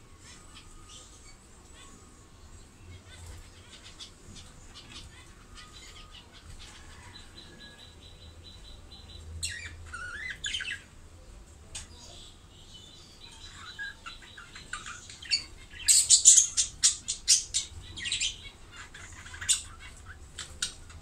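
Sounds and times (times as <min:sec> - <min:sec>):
budgerigars chirping: 0:02.9 - 0:10.9, 0:13.1 - 0:21.0.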